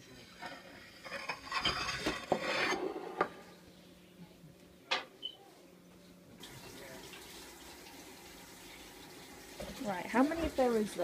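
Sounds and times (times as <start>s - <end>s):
rubbing and scraping: 0.5s - 3.4s.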